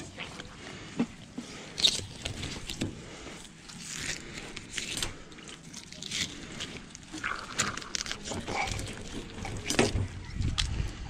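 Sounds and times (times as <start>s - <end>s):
knife rasping through fish: 1.4s - 10.0s.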